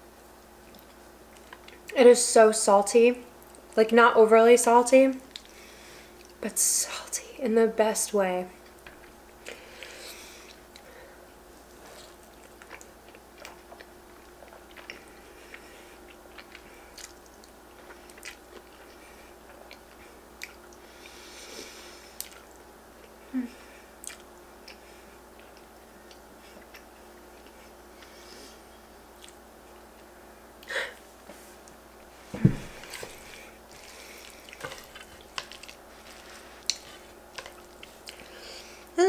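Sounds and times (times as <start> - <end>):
chewing and slurping noodles: 32.8 - 38.4.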